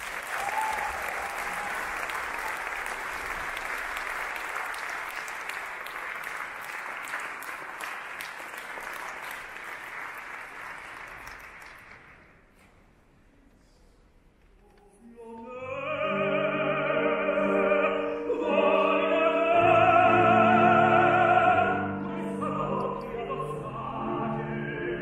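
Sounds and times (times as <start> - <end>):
audience applauding: 0.0 - 12.5.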